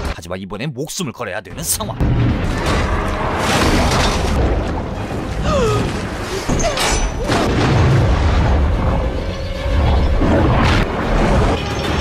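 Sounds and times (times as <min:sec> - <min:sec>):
dramatic music: 0:02.0 - 0:12.0
churning water with bubbles: 0:02.2 - 0:06.5.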